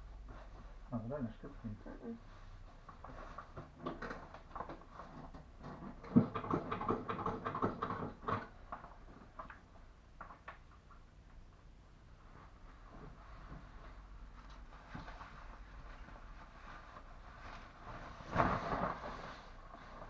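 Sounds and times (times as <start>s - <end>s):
nylon cape rustling: 12.4s - 20.0s.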